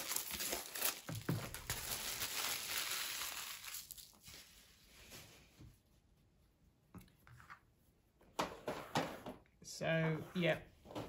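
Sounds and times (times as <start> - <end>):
cellophane crinkling: 0.0 - 4.6.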